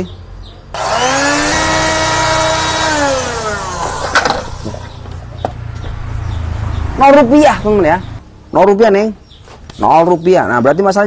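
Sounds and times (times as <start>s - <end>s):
blender motor whining: 0.8s - 5.0s.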